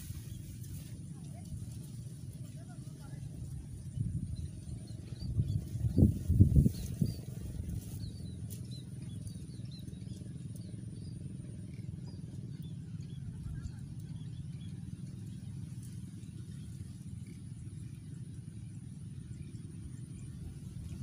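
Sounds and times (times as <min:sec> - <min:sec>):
low rumble: 0:00.0 - 0:11.8.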